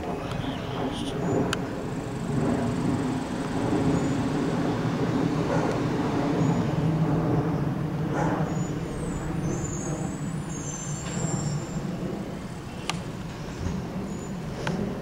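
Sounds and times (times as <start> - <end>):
refuse truck engine running: 0.0 - 7.2.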